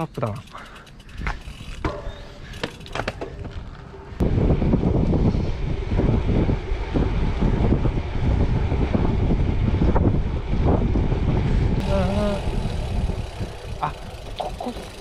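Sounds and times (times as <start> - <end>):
wind buffeting microphone: 3.2 - 15.0.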